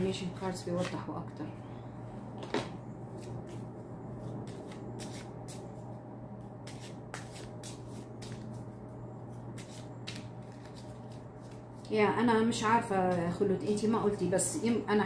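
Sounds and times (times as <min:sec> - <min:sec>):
low hum: 0:00.0 - 0:15.0
cards being shuffled: 0:00.8 - 0:01.0, 0:02.6 - 0:05.8, 0:06.6 - 0:11.9.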